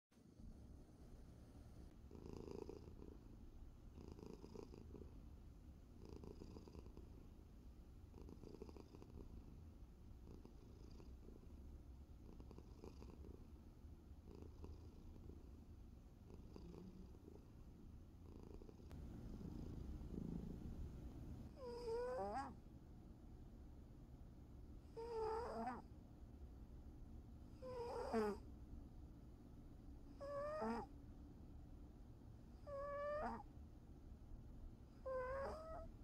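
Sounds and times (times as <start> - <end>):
cat purring: 0.4 - 22.6, 24.8 - 25.9, 27.5 - 28.5, 30.0 - 31.0, 32.4 - 33.5, 34.9 - 36.0.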